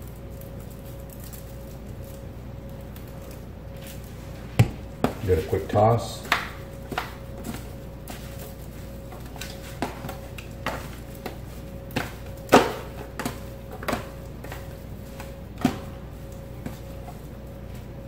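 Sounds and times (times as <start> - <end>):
faint steady hum: 0.0 - 18.0
foil pan crinkling and knocking: 5.0 - 18.0.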